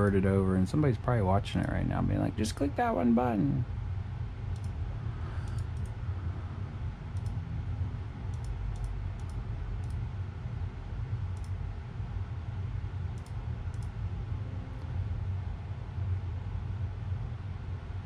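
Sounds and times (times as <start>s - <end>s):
steady low hum: 0.0s - 18.0s
computer mouse clicking: 4.5s - 6.0s, 7.1s - 7.4s, 8.3s - 10.0s, 11.3s - 11.6s, 13.1s - 14.0s.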